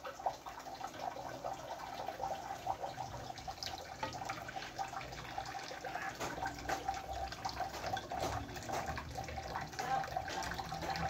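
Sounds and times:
thick mixture bubbling and popping: 0.0s - 11.0s
metal spatula stirring: 3.2s - 11.0s.

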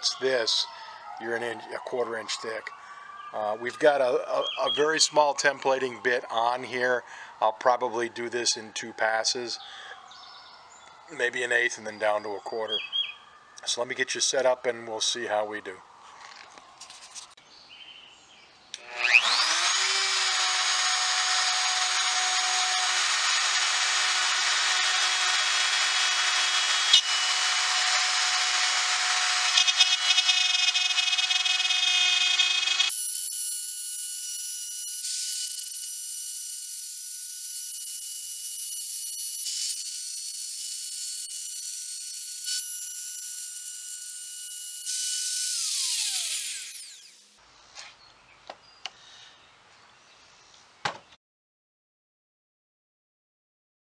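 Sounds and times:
router motor whining: 18.7s - 47.4s
router bit cutting wood: 18.8s - 47.4s.

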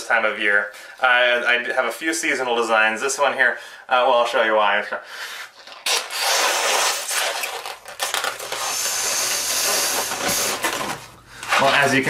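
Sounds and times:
breath blowing into balloon: 5.2s - 7.8s, 8.4s - 10.8s
latex rubbing against hands: 8.4s - 10.8s.

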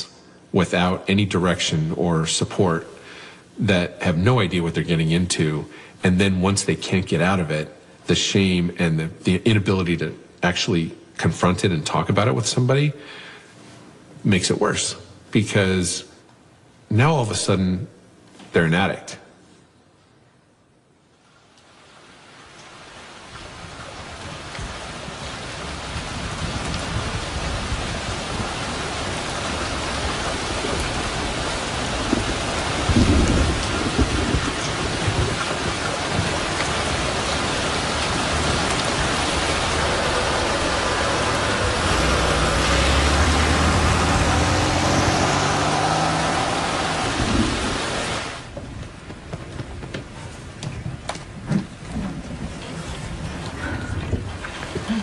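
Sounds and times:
heavy rain: 21.7s - 55.0s
thunder rumbling: 24.1s - 55.0s.

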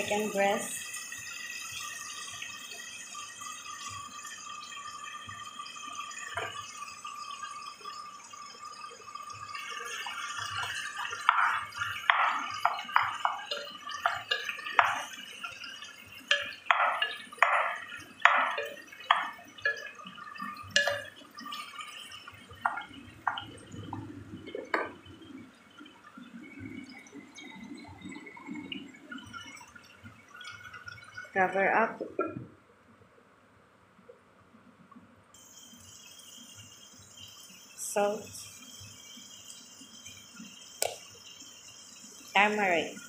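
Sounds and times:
wooden spoon stirring wet chicken: 10.4s - 21.8s.

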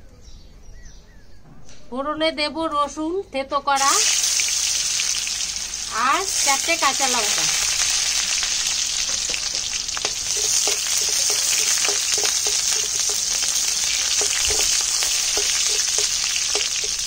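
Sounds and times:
garlic sizzling in hot oil: 3.8s - 17.0s
spatula clicking against pan: 9.3s - 17.0s.

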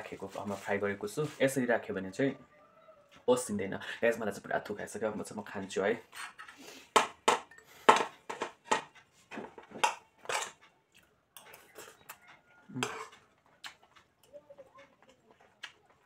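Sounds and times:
metal spoon scraping a plate: 5.6s - 6.8s, 7.5s - 10.8s, 11.4s - 13.3s.

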